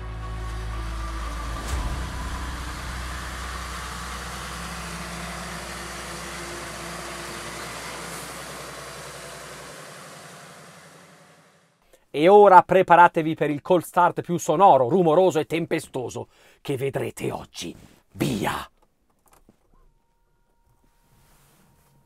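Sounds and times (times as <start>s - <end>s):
diesel truck engine rumbling: 0.0s - 11.4s.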